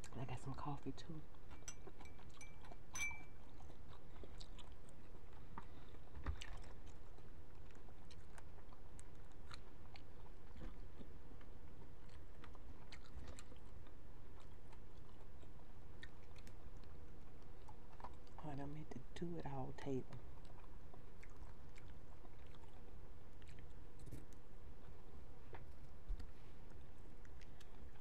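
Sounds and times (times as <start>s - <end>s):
chewing shrimp clicks: 1.4s - 18.4s, 20.1s - 25.0s.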